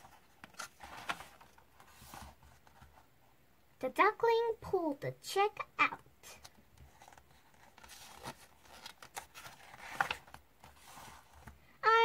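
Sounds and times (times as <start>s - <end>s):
book page turning: 0.0s - 3.0s, 6.4s - 11.6s.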